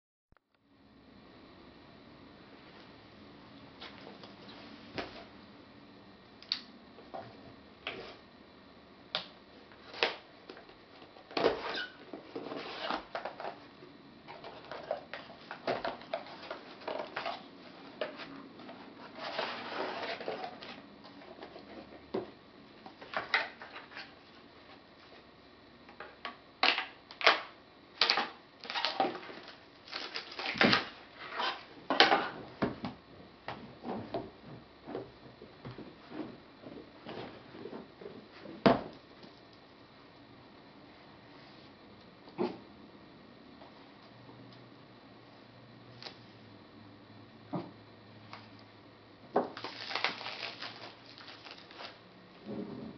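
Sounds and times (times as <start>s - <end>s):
knife slitting packing tape: 49.6s - 52.0s.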